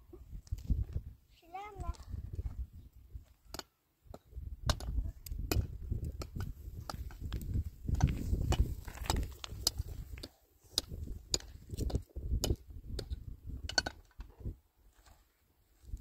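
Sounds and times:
stones clacking together: 0:03.5 - 0:14.3.

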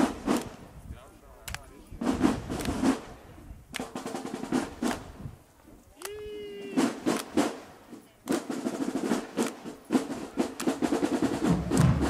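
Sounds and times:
drumline playing a cadence: 0:00.0 - 0:00.6, 0:06.5 - 0:12.0.

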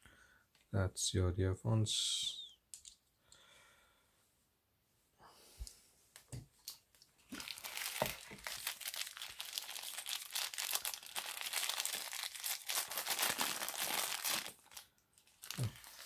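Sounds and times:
paper wrapping crinkling: 0:07.2 - 0:16.0.

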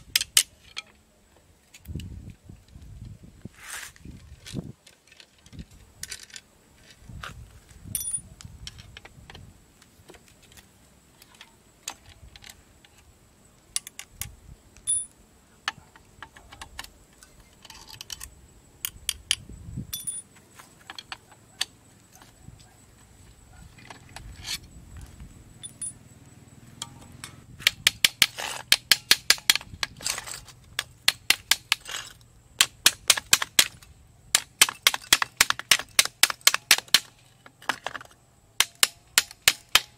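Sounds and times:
metallic clicks and clinks: 0:07.9 - 0:08.9, 0:13.7 - 0:21.7, 0:25.6 - 0:26.0.

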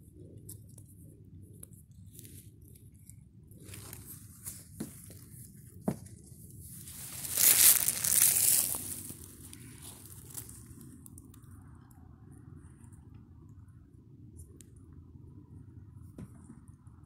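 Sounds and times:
dry grass rustling and crackling: 0:01.5 - 0:11.4
grass brushing against microphone: 0:06.6 - 0:10.8.

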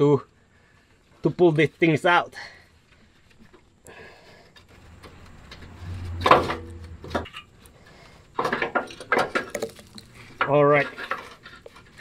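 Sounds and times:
metal clanking and scraping: 0:04.5 - 0:12.0.

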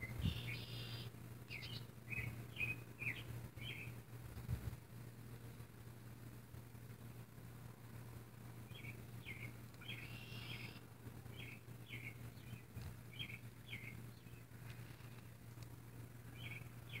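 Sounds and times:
faint bird chirping: 0:00.0 - 0:04.0, 0:08.7 - 0:15.3, 0:16.2 - 0:17.0
steady low hum: 0:00.0 - 0:17.0.

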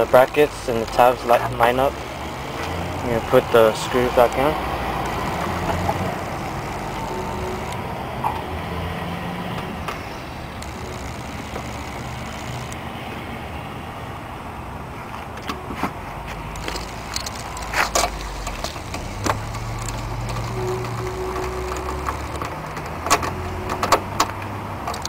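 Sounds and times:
steady background rush: 0:00.0 - 0:14.6.

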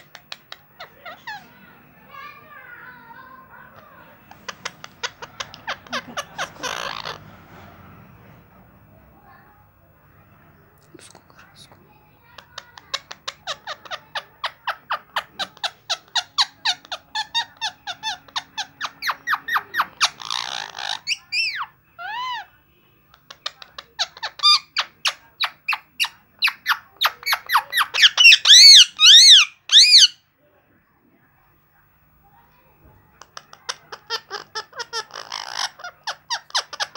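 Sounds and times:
parakeet chattering chirps: 0:00.0 - 0:01.4, 0:03.7 - 0:07.3, 0:12.3 - 0:22.5, 0:23.1 - 0:30.2, 0:33.2 - 0:36.9
parakeet squawking calls: 0:04.3 - 0:07.3, 0:12.6 - 0:22.5, 0:23.4 - 0:30.2, 0:33.3 - 0:36.9.

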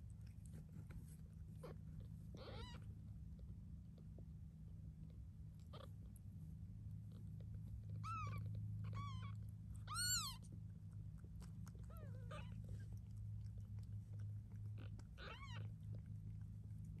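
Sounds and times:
steady low hum: 0:00.0 - 0:17.0
kittens mewing: 0:01.6 - 0:02.9, 0:07.9 - 0:10.4, 0:14.7 - 0:16.0.

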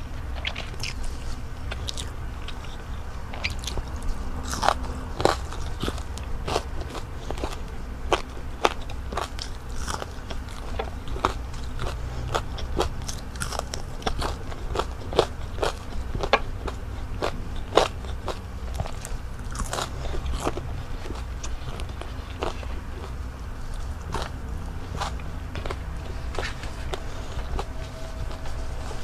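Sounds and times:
crunching and chewing fried food: 0:00.0 - 0:29.0.

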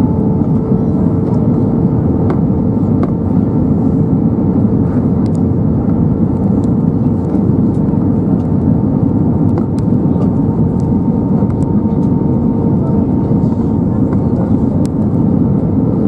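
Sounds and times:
airplane cabin roar: 0:00.0 - 0:16.0
constant hum tone: 0:00.0 - 0:16.0.

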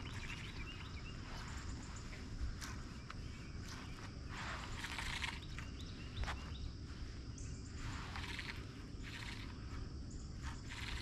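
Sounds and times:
rapid bird trills: 0:00.0 - 0:02.2, 0:03.2 - 0:11.0
bird chirps: 0:00.0 - 0:11.0
low wind rumble: 0:00.0 - 0:11.0.

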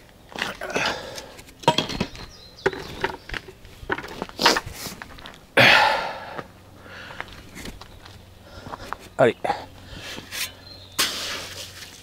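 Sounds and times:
bucket being set down: 0:01.6 - 0:03.2
footsteps on concrete: 0:06.3 - 0:09.2
loud rough scraping noise: 0:09.9 - 0:12.0.

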